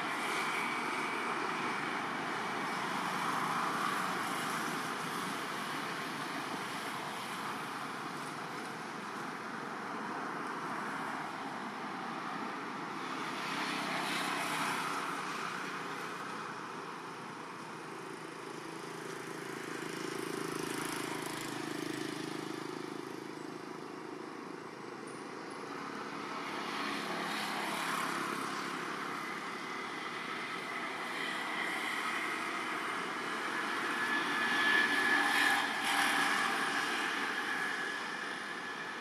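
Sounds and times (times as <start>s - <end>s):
traffic passing: 25.7s - 39.0s.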